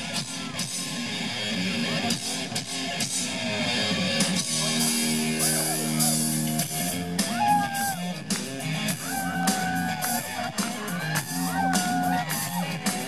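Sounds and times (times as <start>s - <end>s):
bass guitar: 0.0s - 13.0s
distorted electric guitar lead: 0.0s - 13.0s
drum kit: 4.1s - 13.0s.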